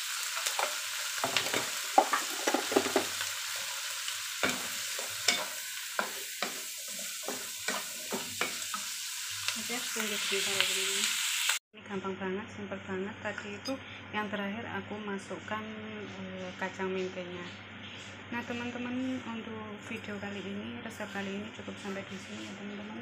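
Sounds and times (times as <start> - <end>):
vegetables sizzling in oil: 0.0 - 11.6
spatula scraping a wok: 0.1 - 9.6, 20.3 - 23.0.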